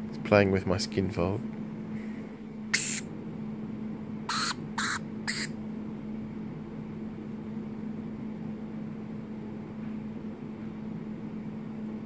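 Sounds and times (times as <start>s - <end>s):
lorikeets squawking: 2.7s - 3.1s, 4.3s - 5.6s.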